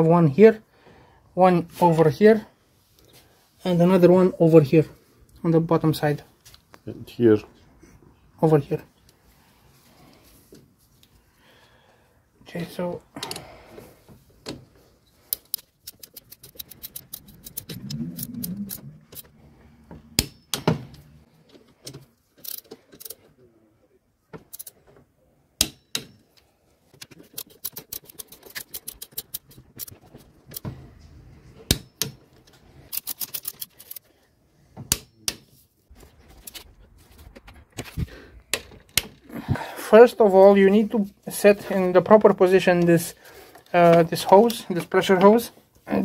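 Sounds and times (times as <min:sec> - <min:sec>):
ratchet wrench clicking: 0:15.3 - 0:17.8.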